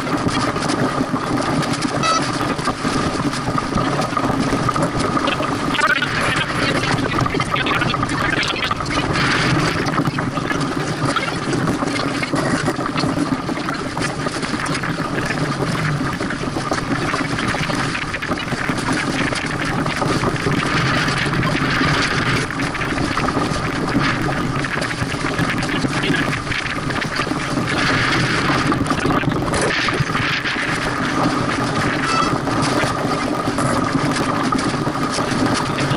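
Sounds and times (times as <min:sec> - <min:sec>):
rush of wind and water: 0:00.0 - 0:35.9.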